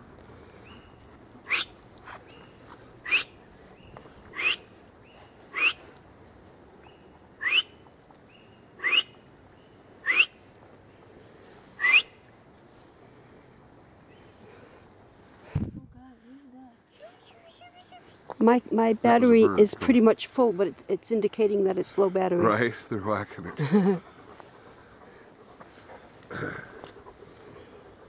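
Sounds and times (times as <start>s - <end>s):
sharp upward sweeping whistles: 7.4s - 7.7s, 8.8s - 9.1s, 10.0s - 10.3s, 11.8s - 12.1s.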